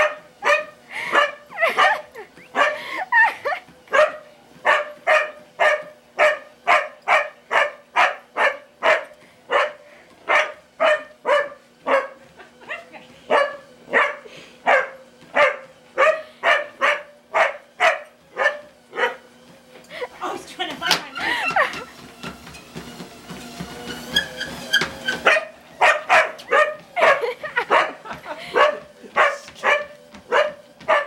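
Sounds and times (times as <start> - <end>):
dog barking excitedly: 0.0 - 2.8, 3.9 - 12.3, 13.3 - 19.3, 25.1 - 31.0
treadmill running: 0.0 - 31.0.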